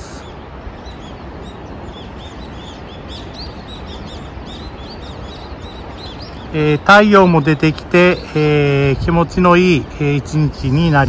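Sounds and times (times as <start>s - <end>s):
birds chirping in flight: 0.0s - 11.0s.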